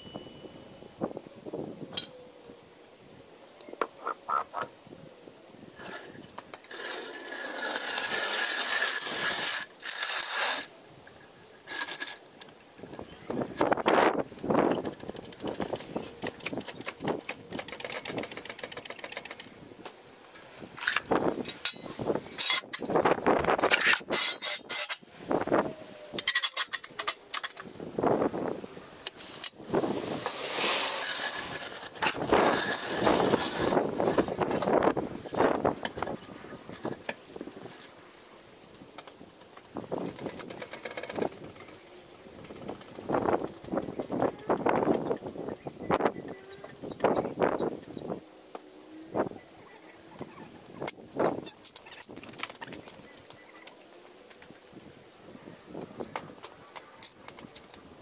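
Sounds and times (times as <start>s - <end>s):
jacking gear scraping on concrete: 5.8s - 12.6s, 20.4s - 25.1s, 26.2s - 28.2s, 29.0s - 38.2s.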